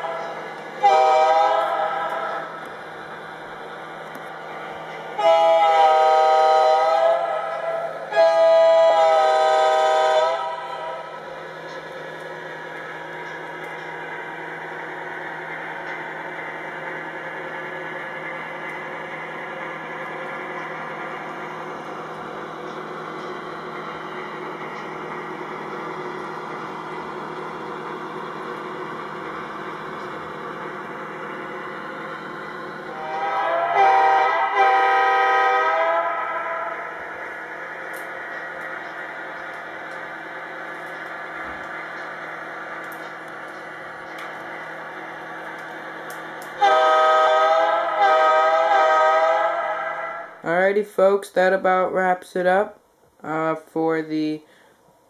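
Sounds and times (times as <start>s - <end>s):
train horn blasts: 0.0s - 2.5s, 5.2s - 11.1s, 32.9s - 36.8s, 46.6s - 50.3s
model train engine sound: 0.0s - 52.6s.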